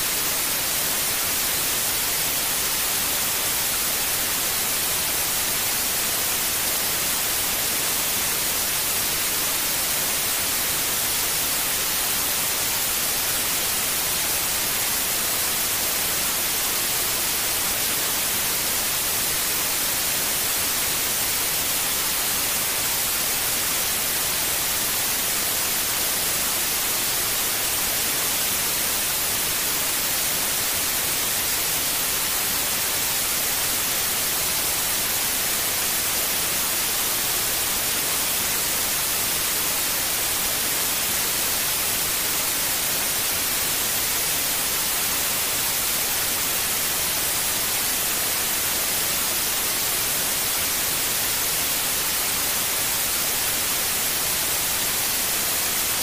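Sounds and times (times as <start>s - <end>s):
white noise hiss: 0.0s - 56.0s.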